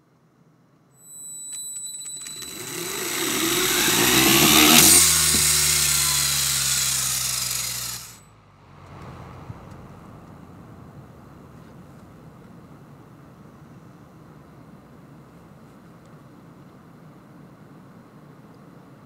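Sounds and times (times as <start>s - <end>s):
toy motors whirring: 1.8s - 8.2s.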